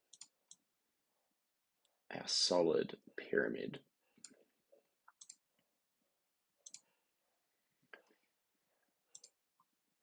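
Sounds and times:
faint computer mouse clicks: 6.6 - 6.9, 9.1 - 9.4.

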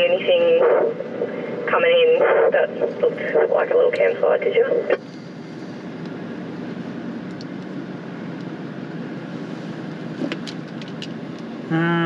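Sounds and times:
engine and tyre noise in car: 4.0 - 11.7.

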